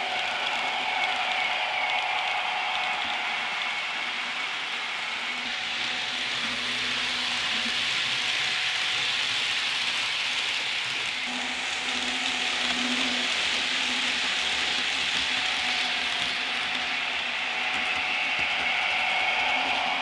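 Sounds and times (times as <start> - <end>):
model train wheels rolling on rail: 0.0 - 20.0.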